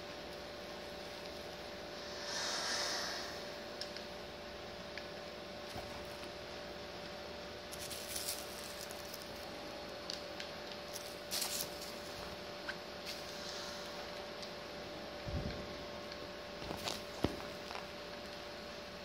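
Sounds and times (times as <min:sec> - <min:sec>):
faint hum: 0:00.0 - 0:19.0
scratchy rustles: 0:07.7 - 0:09.4.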